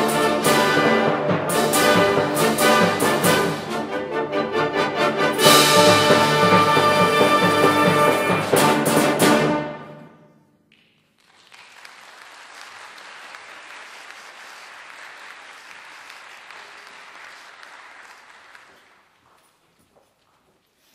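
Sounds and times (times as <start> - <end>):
audience applause: 11.1 - 19.3.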